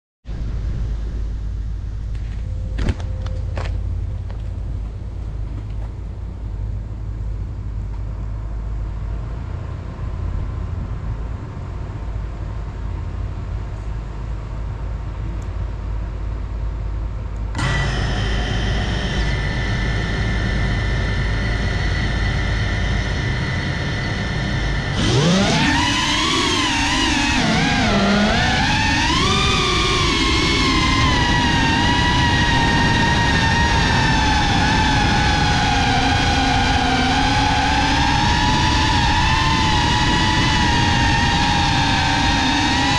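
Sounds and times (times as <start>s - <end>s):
low steady rumble: 0.3s - 42.9s
quadcopter motors whining: 17.5s - 42.9s.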